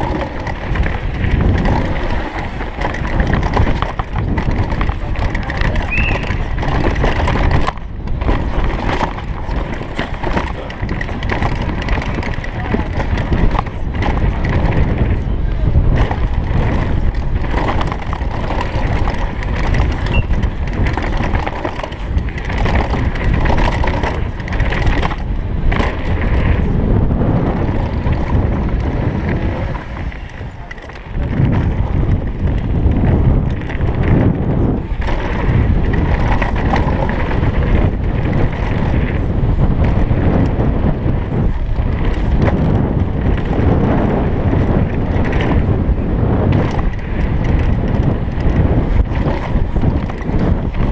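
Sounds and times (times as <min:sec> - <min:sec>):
tyres rumbling over dirt and stones: 0:00.0 - 0:50.9
wind on microphone: 0:00.0 - 0:50.9.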